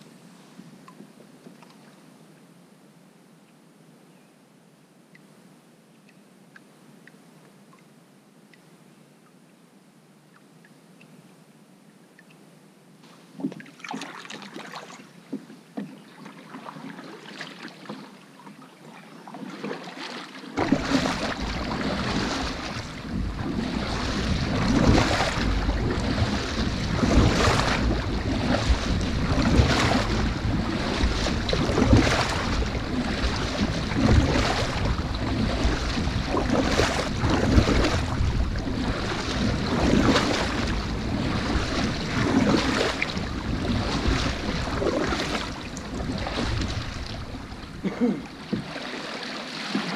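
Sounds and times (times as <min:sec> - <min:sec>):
water rushing along hull: 0:13.1 - 0:49.9
kayak paddle splashing: 0:13.2 - 0:49.9
heavy wind on microphone: 0:20.6 - 0:48.7.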